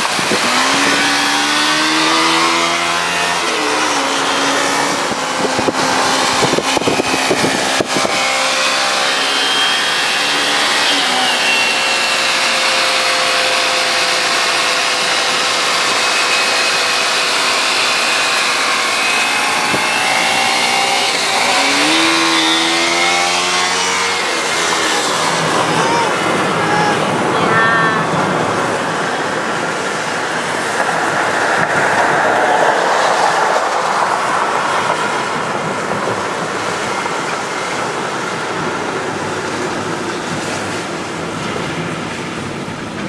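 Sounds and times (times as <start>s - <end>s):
motorcycle engine running: 0.0s - 9.0s.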